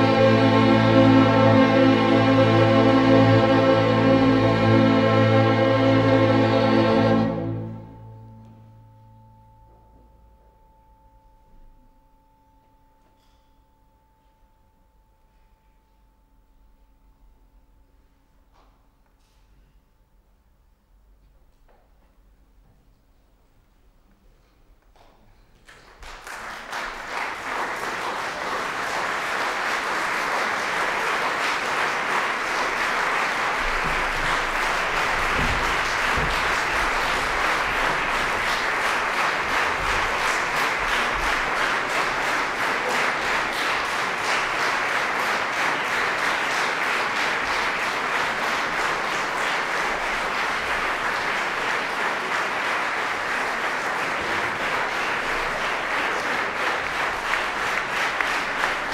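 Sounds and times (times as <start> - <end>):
audience applauding: 25.6 - 58.9.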